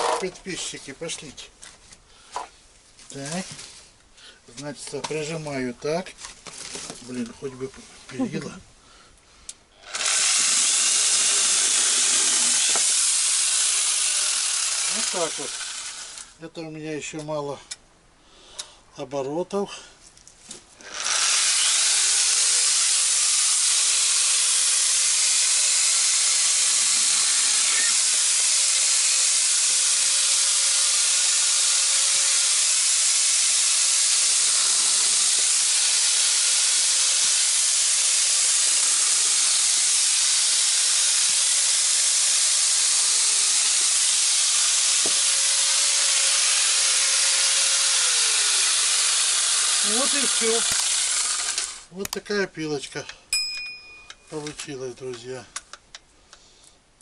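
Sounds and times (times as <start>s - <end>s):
chainsaw cutting log: 0.0s - 0.4s, 9.8s - 16.4s, 20.8s - 51.9s.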